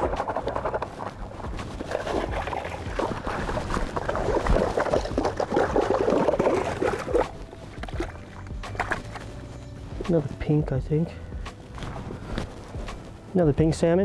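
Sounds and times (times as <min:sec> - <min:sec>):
fish splashing in water: 0:00.0 - 0:09.3.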